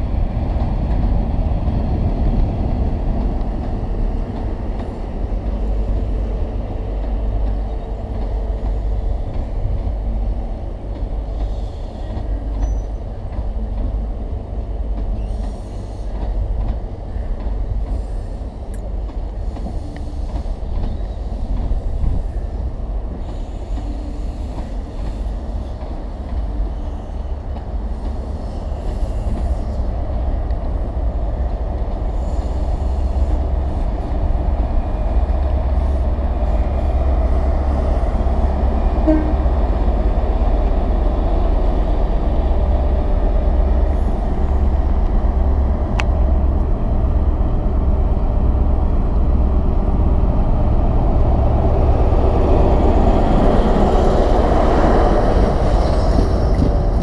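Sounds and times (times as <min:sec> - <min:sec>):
train engine and wheels rumbling: 0:00.0 - 0:57.0.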